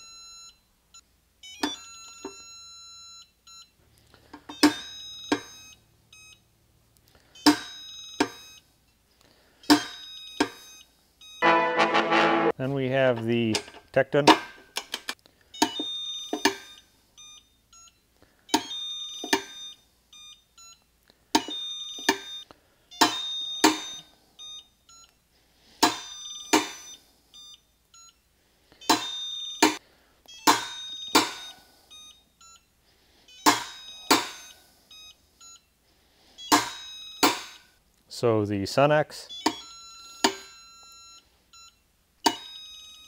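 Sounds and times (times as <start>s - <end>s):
short faint beeps: 30.3s - 32.7s.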